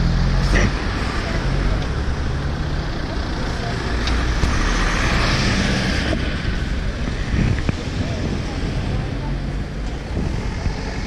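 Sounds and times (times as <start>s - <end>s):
cars passing with tyre noise: 0.0s - 11.0s.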